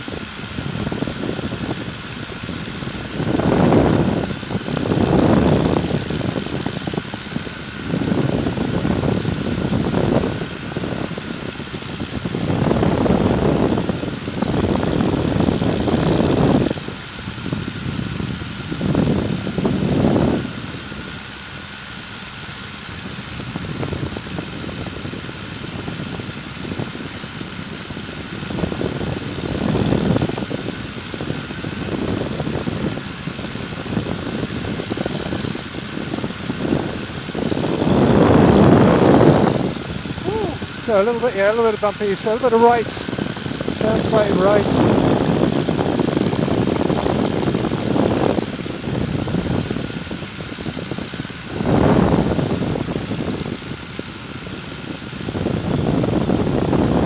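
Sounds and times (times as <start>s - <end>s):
airplane engine running: 0.0s - 57.0s
wind buffeting microphone: 0.0s - 57.0s.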